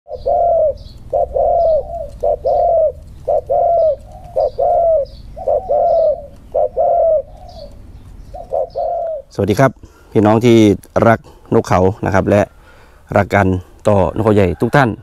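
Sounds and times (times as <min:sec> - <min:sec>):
dove cooing: 0:00.1 - 0:09.4.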